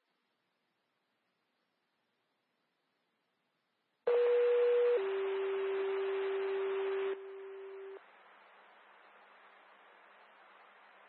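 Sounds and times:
two-tone radio page tones: 4.1s - 8.0s
radio hiss: 4.1s - 11.0s.

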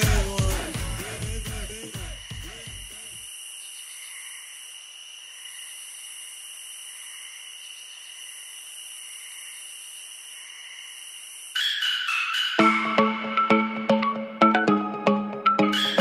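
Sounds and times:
crickets chirping: 0.0s - 12.6s.

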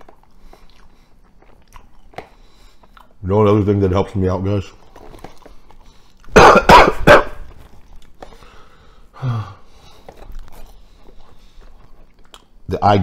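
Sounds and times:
man coughing hard: 6.3s - 7.6s.

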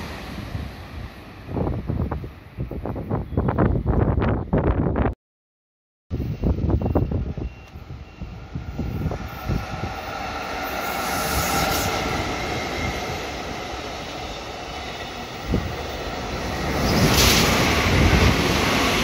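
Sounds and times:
train wheels rumbling on rail: 6.3s - 19.0s.

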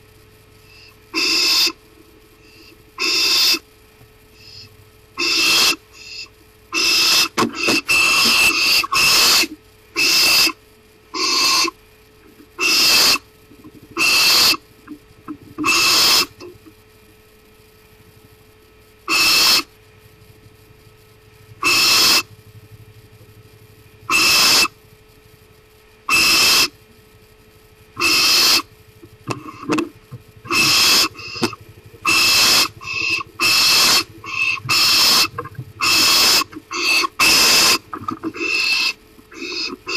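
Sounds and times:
owl hissing screech calls: 0.7s - 1.8s, 2.4s - 3.7s, 4.4s - 11.8s, 12.6s - 13.3s, 14.0s - 14.7s, 15.6s - 16.4s, 19.1s - 19.7s, 21.6s - 22.3s, 24.1s - 24.8s, 26.1s - 26.8s, 28.0s - 28.7s, 30.5s - 39.9s.

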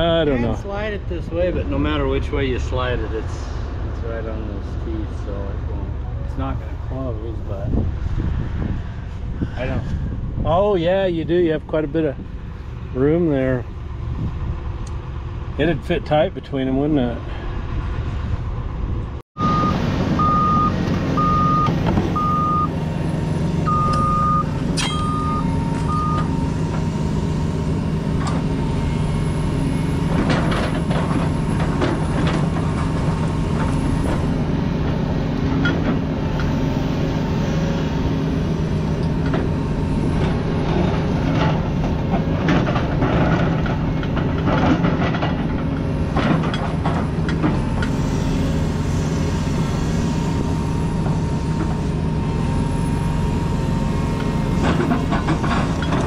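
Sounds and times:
excavator diesel engine running: 16.9s - 56.0s
warning beeper: 19.4s - 22.8s, 23.6s - 27.4s.

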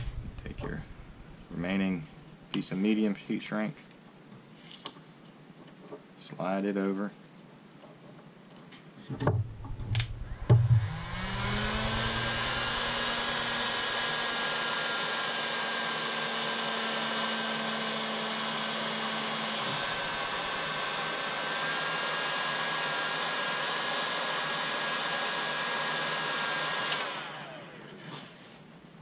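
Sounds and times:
heat gun fan humming: 0.0s - 2.6s, 9.2s - 28.0s
heat gun blowing: 9.5s - 17.4s, 18.0s - 27.8s.

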